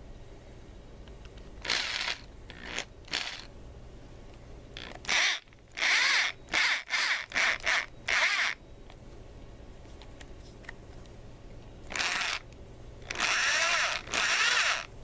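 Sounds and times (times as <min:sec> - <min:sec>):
electric drill whine: 0:01.6 - 0:03.5, 0:04.8 - 0:08.6, 0:11.9 - 0:12.4, 0:13.1 - 0:14.9.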